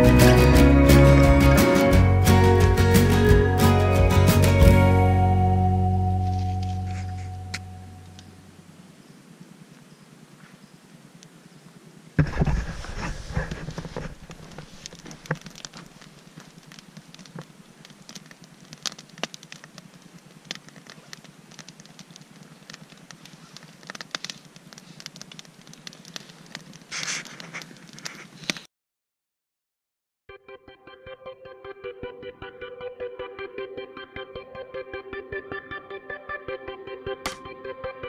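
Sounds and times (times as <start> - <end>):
campfire crackling and popping: 0.0 - 9.8, 12.1 - 28.7.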